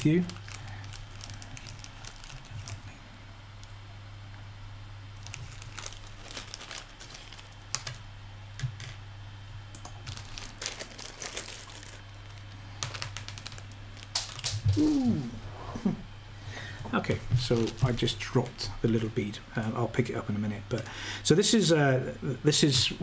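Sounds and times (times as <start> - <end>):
plastic bag crinkling: 0.0 - 3.0, 5.2 - 8.0, 9.9 - 15.1, 17.1 - 18.2
low hum: 0.0 - 21.3.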